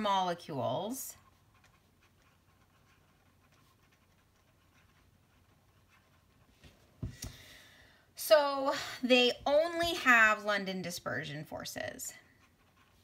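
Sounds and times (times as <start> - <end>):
pen scratching on paper: 0.0 - 6.7, 12.1 - 13.0.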